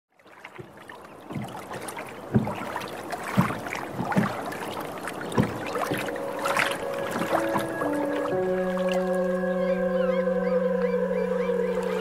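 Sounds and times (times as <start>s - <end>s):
water lapping against boat hull: 0.1s - 9.4s.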